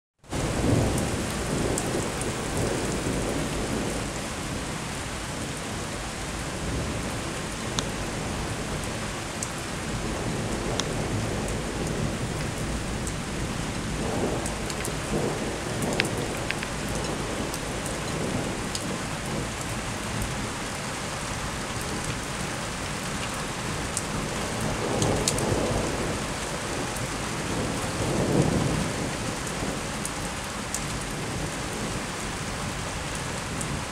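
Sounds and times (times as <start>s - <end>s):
steady rain falling: 0.2s - 33.9s
thunder rumbling low: 0.3s - 20.5s
sharp water drips: 7.0s - 20.8s.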